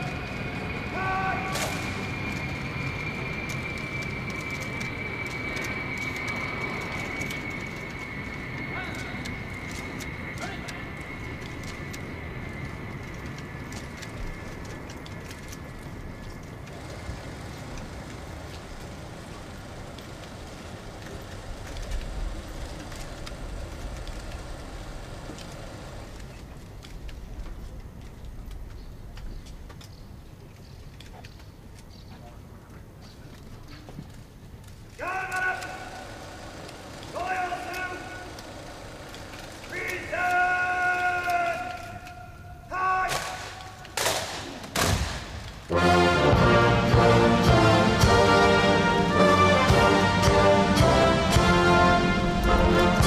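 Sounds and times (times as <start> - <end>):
thin high whine: 0.0 - 26.4
steady rushing noise: 0.0 - 28.6, 44.4 - 53.0
steady low rumble: 0.0 - 29.7, 45.0 - 53.0
footsteps on stone pavement: 0.0 - 42.7
faint clicks: 1.0 - 45.6.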